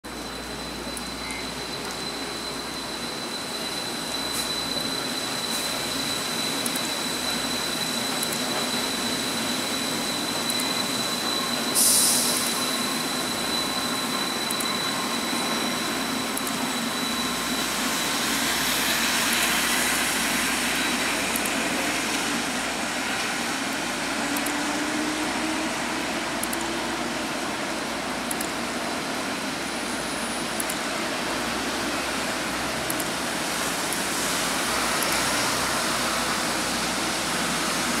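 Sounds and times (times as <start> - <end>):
train high whine: 0.0 - 38.0
approaching train hum: 0.1 - 38.0
traffic hiss on wet road: 11.8 - 12.7, 17.6 - 28.0, 28.6 - 38.0.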